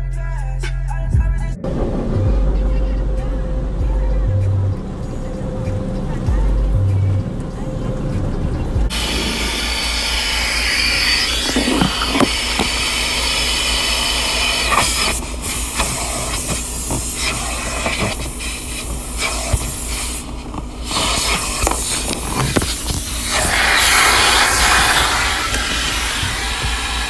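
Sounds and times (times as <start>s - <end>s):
car wash hissing rush: 1.7s - 27.0s.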